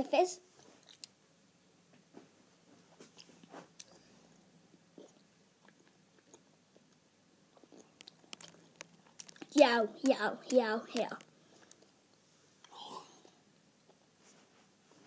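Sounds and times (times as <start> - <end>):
child chewing gum: 0.6 - 1.2, 3.0 - 4.1, 4.7 - 14.1.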